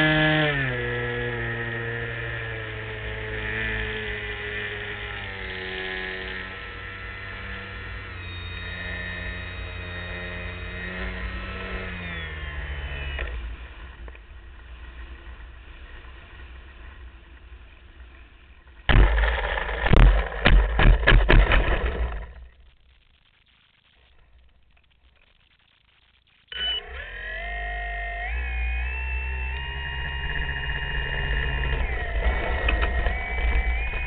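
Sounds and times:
model plane propeller motor drone: 0:00.0 - 0:22.5, 0:26.6 - 0:34.0
wheels rumbling over dirt: 0:13.2 - 0:22.7, 0:29.6 - 0:34.0.

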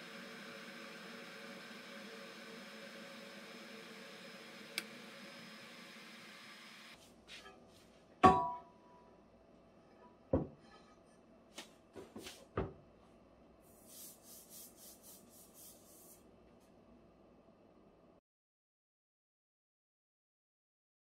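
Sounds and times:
hands rubbing over surface: 0:13.7 - 0:16.2.

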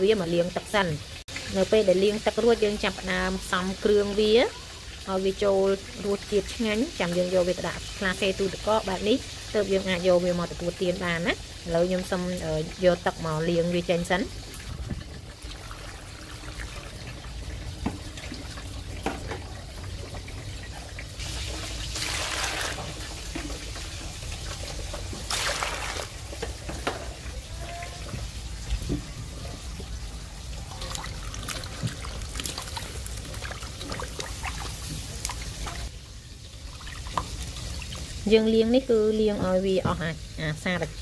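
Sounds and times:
water pouring into metal bowl: 0:14.4 - 0:26.4, 0:30.4 - 0:38.3.

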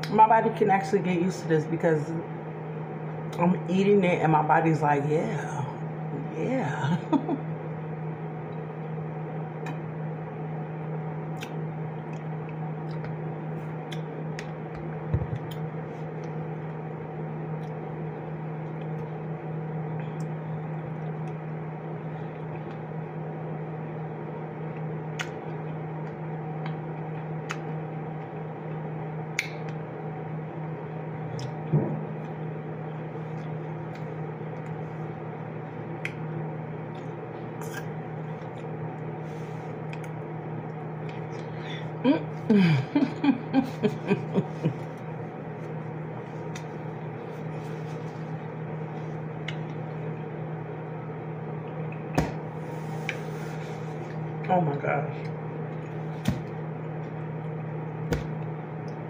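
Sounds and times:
low appliance hum: 0:00.0 - 0:59.0
eating sounds: 0:36.9 - 0:38.7.

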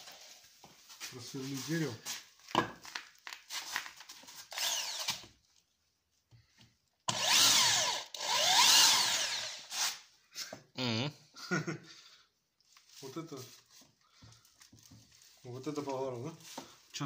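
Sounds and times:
drill boring into wood: 0:04.5 - 0:05.3, 0:07.1 - 0:10.0.

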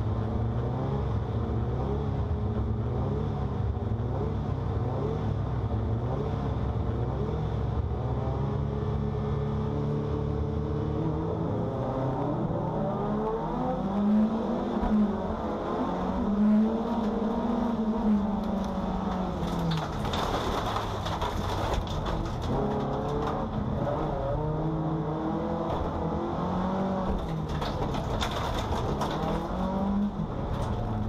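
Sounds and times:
race car engine revving: 0:06.0 - 0:31.0.

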